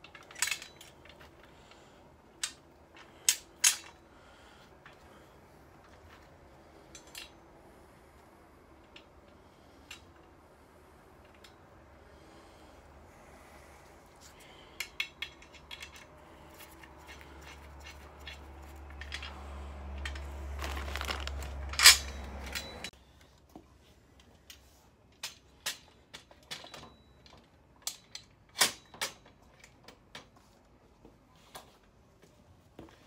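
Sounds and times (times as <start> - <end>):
plastic wrapping rustling: 16.5 - 22.9.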